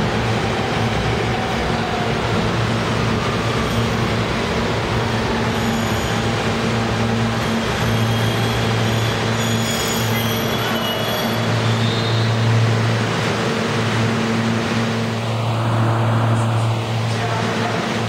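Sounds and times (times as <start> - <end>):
subway train rumbling: 0.0 - 18.0
faint high wheel squeal: 7.5 - 12.4.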